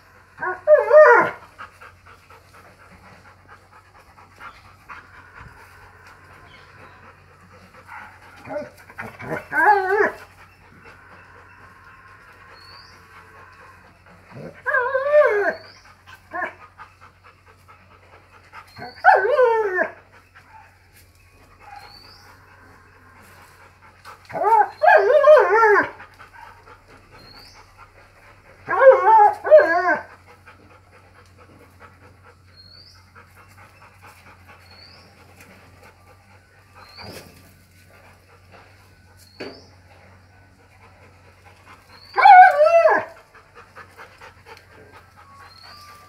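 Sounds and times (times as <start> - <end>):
dog whining: 4.2 - 16.7, 18.7 - 20.7, 24.3 - 28.1, 28.7 - 30.5, 41.9 - 43.3, 44.5 - 46.0.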